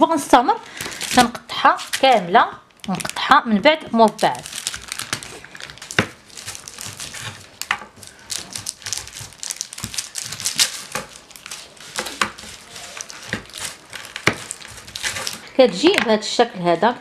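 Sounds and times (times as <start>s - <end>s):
paper crinkling: 4.0s - 16.8s.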